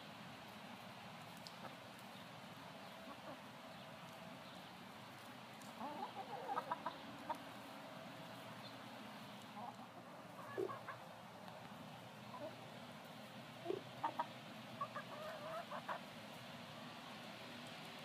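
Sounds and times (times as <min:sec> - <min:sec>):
hens clucking: 0:02.8 - 0:04.2, 0:05.6 - 0:17.7.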